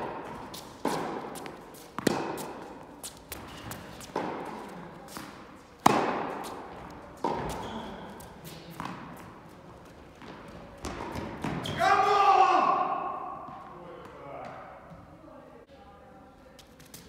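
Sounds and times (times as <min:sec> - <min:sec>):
tennis racket hitting ball: 0:00.0 - 0:07.8, 0:10.2 - 0:11.7
ball bouncing on court: 0:00.0 - 0:08.0, 0:10.2 - 0:11.8.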